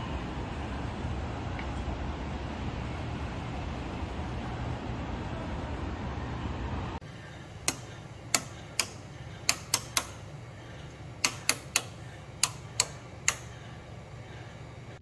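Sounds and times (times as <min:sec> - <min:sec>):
light switches clicking: 0:07.6 - 0:13.7.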